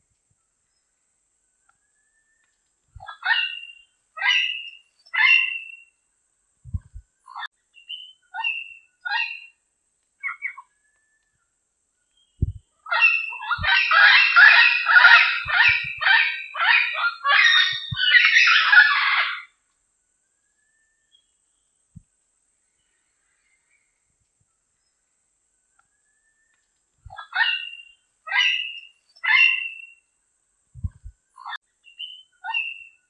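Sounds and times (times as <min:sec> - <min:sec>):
parrot calling and chattering: 0:03.0 - 0:05.8, 0:08.3 - 0:09.5, 0:12.9 - 0:19.5, 0:27.1 - 0:30.0, 0:32.4 - 0:32.9.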